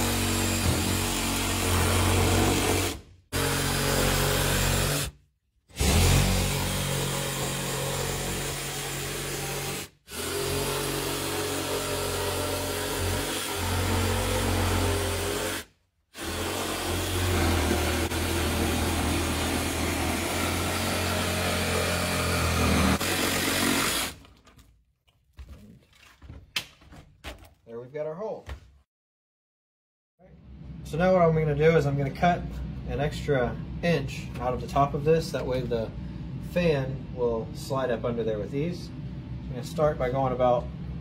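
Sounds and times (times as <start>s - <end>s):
reciprocating saw cutting roof: 0.0s - 24.2s.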